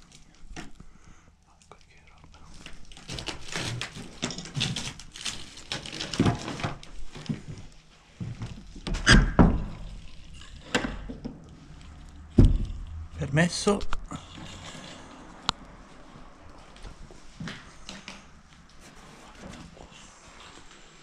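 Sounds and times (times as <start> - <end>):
knocks and thuds: 12.3 - 13.0.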